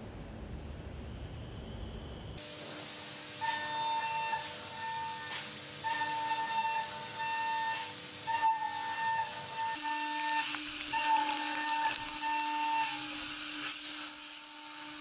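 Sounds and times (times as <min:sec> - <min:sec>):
steady hiss: 0:02.4 - 0:15.0
high cutting whine of milling: 0:03.5 - 0:15.0.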